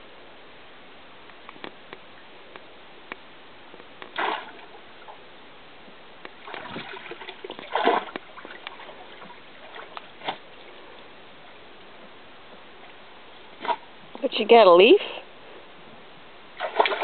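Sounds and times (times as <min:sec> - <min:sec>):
dog splashing in water: 0:06.4 - 0:10.6, 0:16.6 - 0:17.0.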